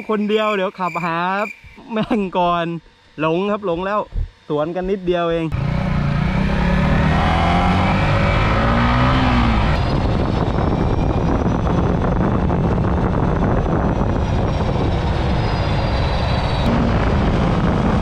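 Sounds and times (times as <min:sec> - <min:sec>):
wind on microphone: 0:04.1 - 0:18.0
motorcycle engine: 0:05.4 - 0:18.0.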